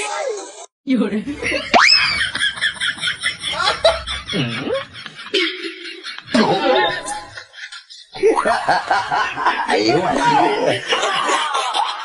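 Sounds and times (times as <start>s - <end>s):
snickering laughter: 1.9s - 12.0s.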